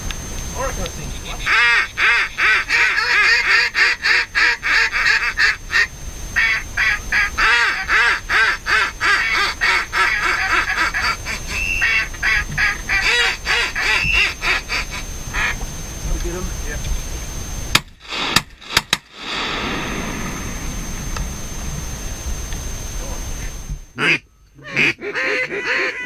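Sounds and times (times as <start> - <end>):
duck call rapid quacks: 1.2 - 15.5, 24.0 - 26.0
drawn-out higher duck call notes: 24.0 - 26.0.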